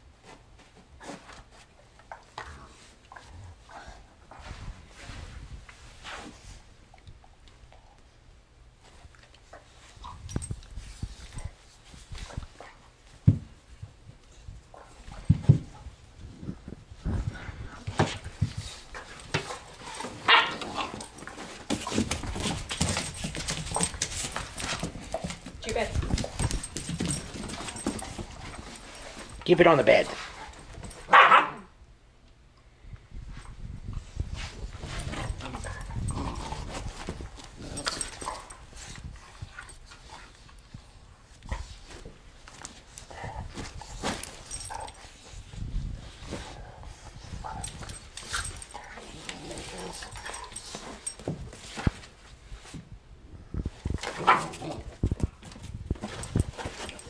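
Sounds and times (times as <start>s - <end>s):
dogs scuffling on bedding: 8.8s - 31.5s, 33.3s - 57.0s
dog barking: 20.3s - 20.6s, 31.1s - 31.7s.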